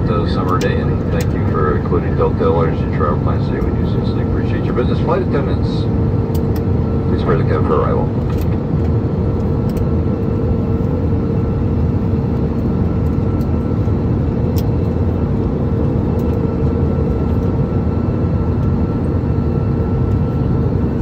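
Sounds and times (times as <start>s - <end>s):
faint steady hums: 0.0s - 21.0s
jet engines and airflow rushing: 0.0s - 21.0s.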